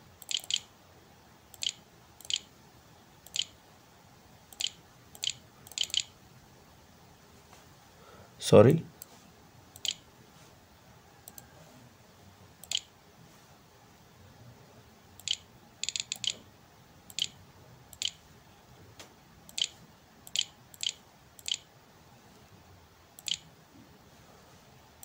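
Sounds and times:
computer mouse button clicking: 4.5s - 6.1s, 9.8s - 10.0s, 12.6s - 12.9s, 23.2s - 23.4s.

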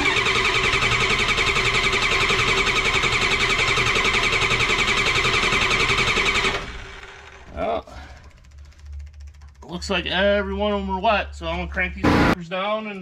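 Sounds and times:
starter cranking diesel engine: 0.0s - 9.6s.

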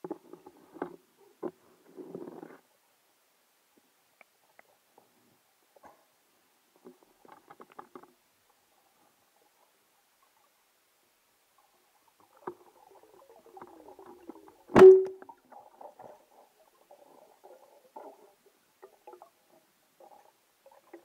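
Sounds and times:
underwater clicks and rustles: 0.0s - 2.7s, 3.8s - 10.7s, 11.5s - 21.0s
speargun shot crack: 14.8s - 15.2s.

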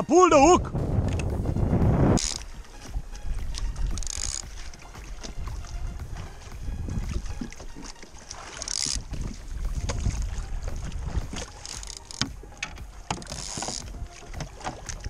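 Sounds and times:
water splashing against kayak hull: 0.0s - 15.0s
wind rumbling on microphone: 0.0s - 15.0s.

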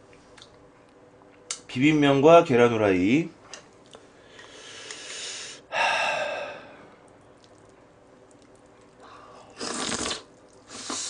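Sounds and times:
loud breathy sound: 4.2s - 6.9s
person slurping noodles: 9.4s - 11.0s.

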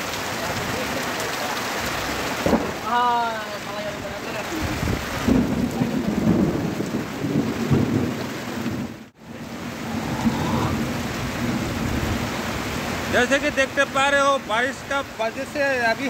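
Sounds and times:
heavy rain on tin roofs: 0.0s - 16.0s
low rumbling thunder: 2.1s - 2.9s, 4.4s - 13.2s.

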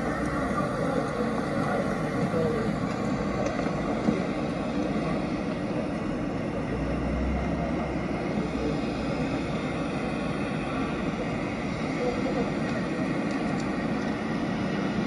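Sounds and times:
passing traffic: 3.3s - 14.8s.

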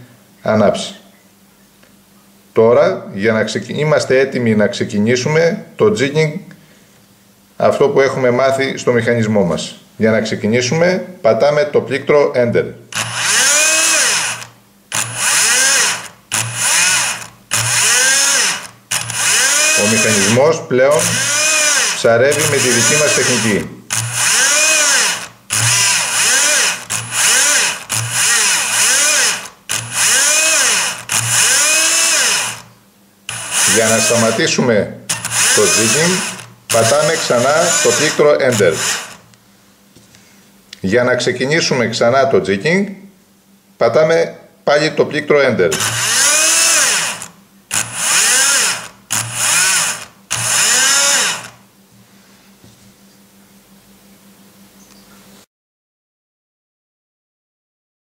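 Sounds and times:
electric fishing reel motor whine: 13.0s - 20.3s, 21.0s - 32.7s, 33.3s - 34.4s, 35.1s - 39.2s, 45.8s - 51.6s.

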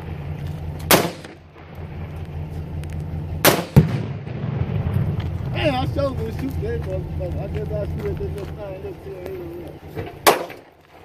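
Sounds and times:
rifle shots: 0.9s - 1.5s, 3.4s - 5.3s, 10.2s - 10.8s
explosive target boom: 3.4s - 6.1s.

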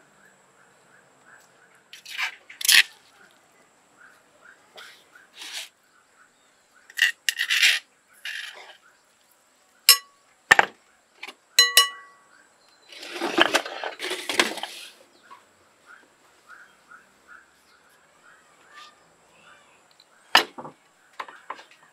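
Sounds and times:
metal spoon scraping stone mortar: 6.9s - 8.8s
spoon clinking on mortar: 9.9s - 10.1s, 11.6s - 12.2s.

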